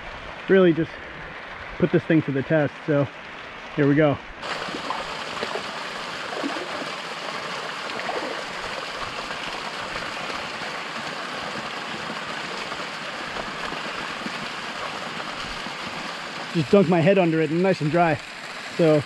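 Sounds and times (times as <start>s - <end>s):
waterfall splashing: 4.4s - 19.0s.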